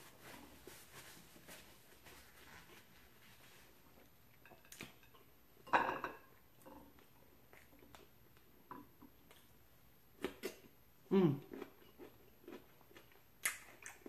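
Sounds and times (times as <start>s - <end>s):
wet eating smacks: 13.4s - 14.0s.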